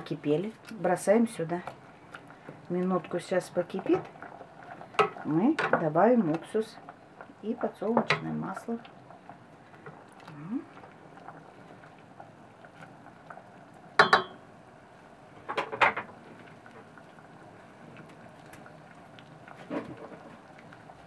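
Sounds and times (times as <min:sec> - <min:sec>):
pot bubbling: 0:00.0 - 0:21.0
spatula stirring: 0:01.1 - 0:11.4
spatula knocking metal pot: 0:14.0 - 0:14.4.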